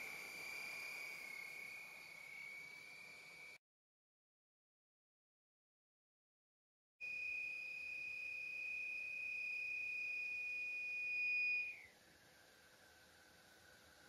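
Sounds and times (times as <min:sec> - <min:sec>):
vacuum cleaner whistle: 0:07.0 - 0:11.9.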